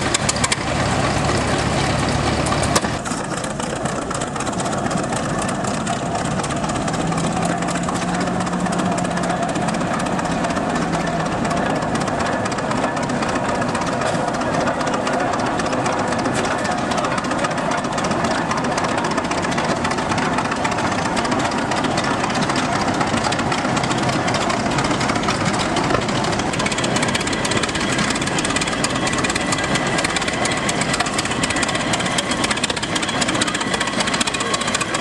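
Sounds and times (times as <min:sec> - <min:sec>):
tractor engine running: 0:00.0 - 0:35.0.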